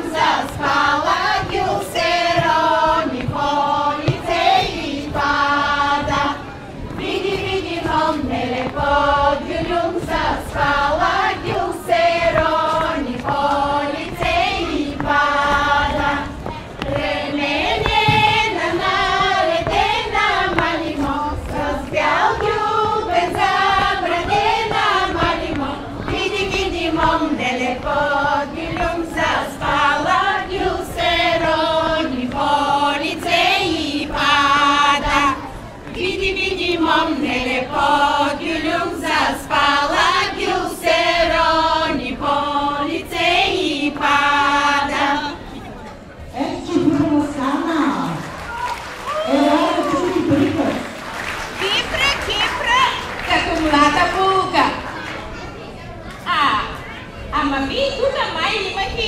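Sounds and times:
women's choir singing in unison: 0.0 - 45.6.

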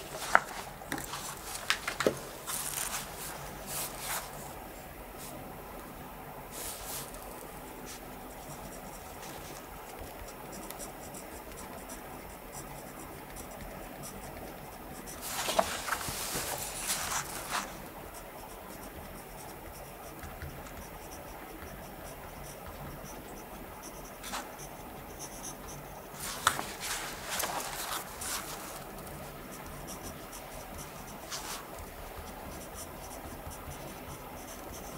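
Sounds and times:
cloth rustling: 0.0 - 4.4, 15.2 - 17.7, 26.2 - 28.8
pen scratching on paper: 7.8 - 34.9.

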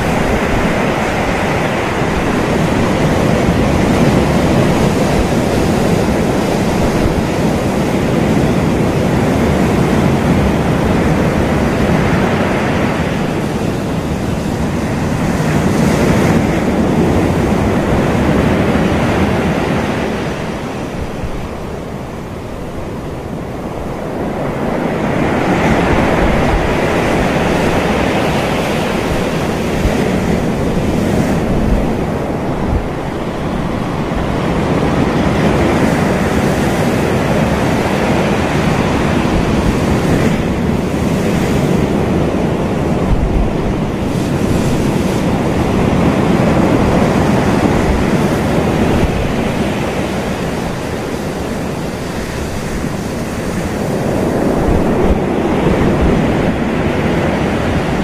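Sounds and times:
small waves breaking on a beach: 0.0 - 58.0.

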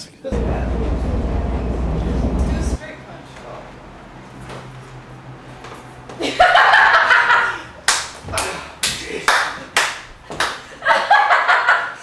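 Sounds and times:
sharp hand claps: 7.8 - 10.7.

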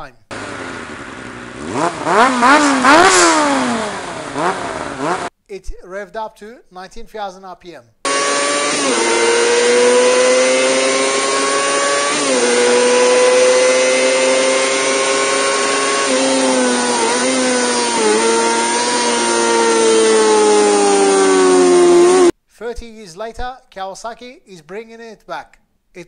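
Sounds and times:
motorcycle engine howling: 0.3 - 5.3, 8.1 - 22.4.

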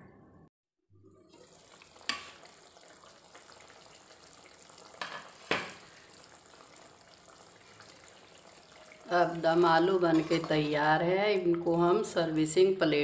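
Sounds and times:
gravy simmering bubbling hiss: 1.2 - 10.8.

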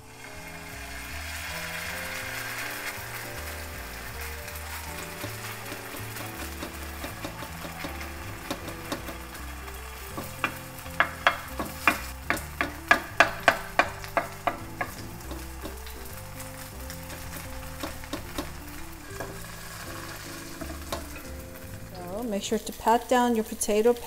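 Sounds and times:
batter sizzling in a pan: 0.0 - 24.0
metal spoon tapping a pan: 4.9 - 21.7.

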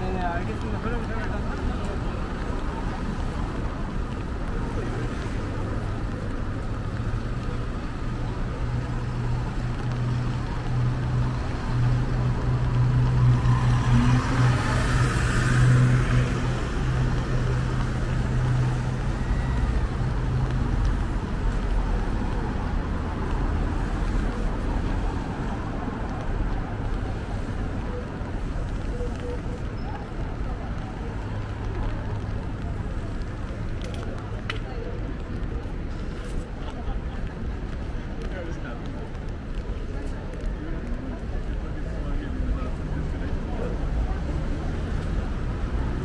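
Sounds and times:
general traffic noise: 0.0 - 46.0
vehicle engine hum passing: 8.4 - 27.8.

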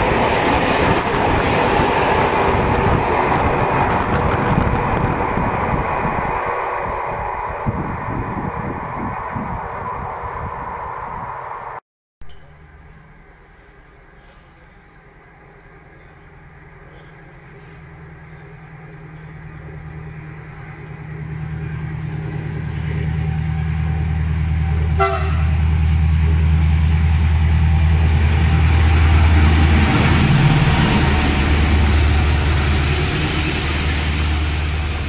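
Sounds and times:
diesel locomotive engine drone: 0.0 - 35.0
train rumbling on rails: 0.0 - 35.0
train horn toot: 24.9 - 25.6.

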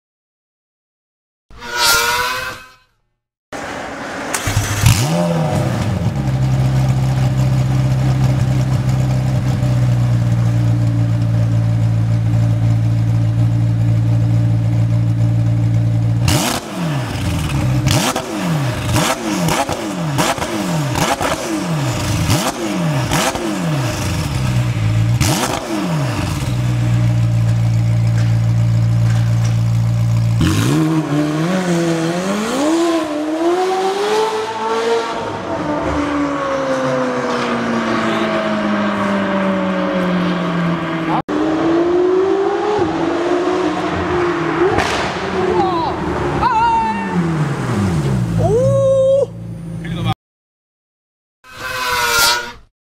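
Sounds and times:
sharp throttle blips: 1.6 - 3.0
car engine revving and idling: 3.6 - 46.5.

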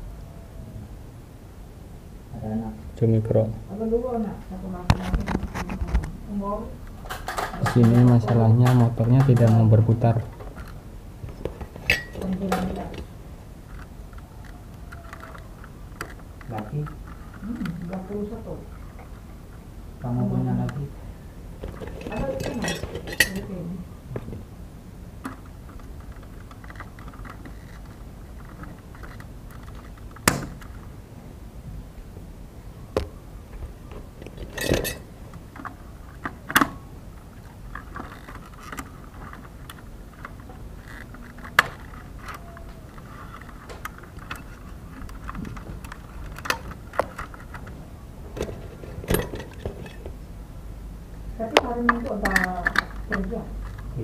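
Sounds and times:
hand tools clicking and clinking: 11.8 - 13.0, 21.8 - 23.5, 34.4 - 35.0.

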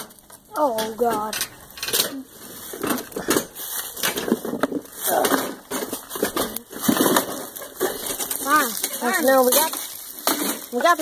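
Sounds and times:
wooden trailer knocking and clattering: 0.0 - 11.0
dry leaves crunching underfoot: 2.2 - 11.0
person grunting with effort: 5.0 - 5.6.

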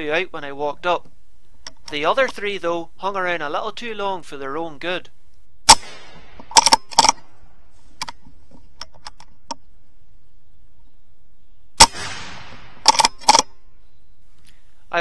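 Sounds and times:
air rifle shot: 5.7 - 7.7, 11.8 - 13.5
mechanical clicks: 6.4 - 7.2.

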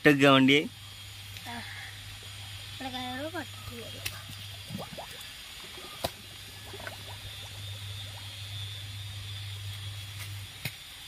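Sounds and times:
stream water lapping and trickling: 1.9 - 9.9.

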